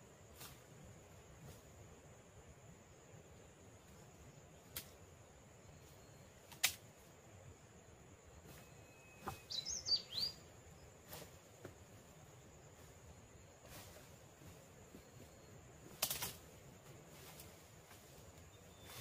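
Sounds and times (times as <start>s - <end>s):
bird chirp: 5.6s - 6.4s, 8.2s - 11.0s, 18.4s - 19.0s
twigs snapping: 6.5s - 6.8s, 15.9s - 16.5s.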